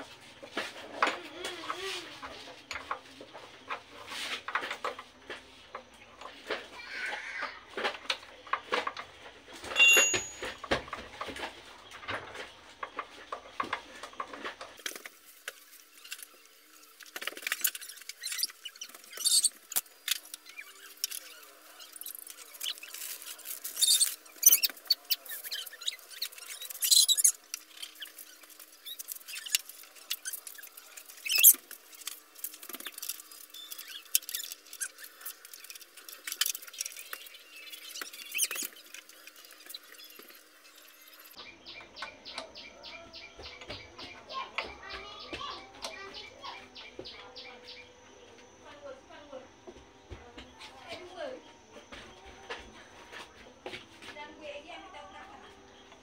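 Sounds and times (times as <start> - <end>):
metal tools clicking and clanking: 9.6 - 11.0.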